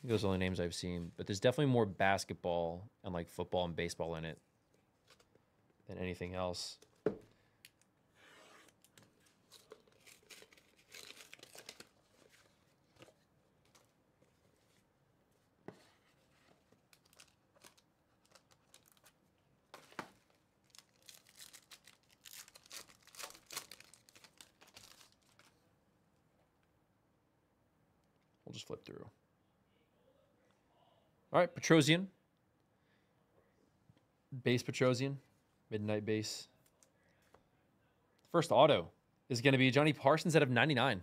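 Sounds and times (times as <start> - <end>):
foil pack crinkling: 8.8 - 13.1, 16.7 - 25.6.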